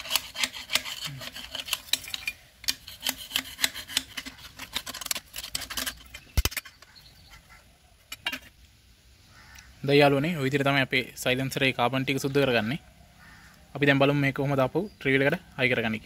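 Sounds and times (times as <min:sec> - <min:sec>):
screwdriver scraping metal pipe: 0:00.0 - 0:06.9.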